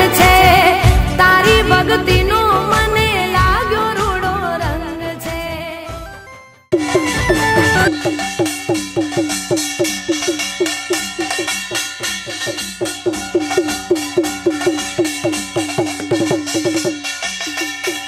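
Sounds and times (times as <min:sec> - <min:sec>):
barrel drum beating: 0:06.7 - 0:18.0.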